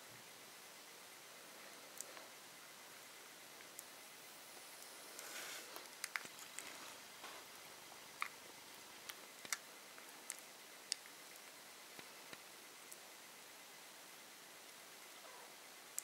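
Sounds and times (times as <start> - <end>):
soft rustle: 4.6 - 10.6.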